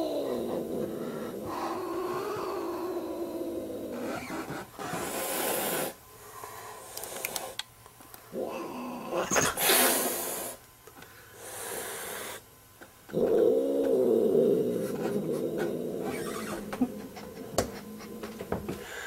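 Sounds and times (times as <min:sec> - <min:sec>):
cat hissing: 0:03.9 - 0:06.0, 0:09.1 - 0:10.6.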